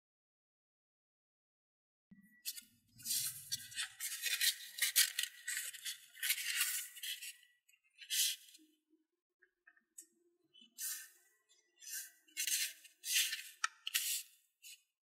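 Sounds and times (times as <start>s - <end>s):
paper rustling as folded: 3.0s - 8.4s, 11.8s - 14.8s.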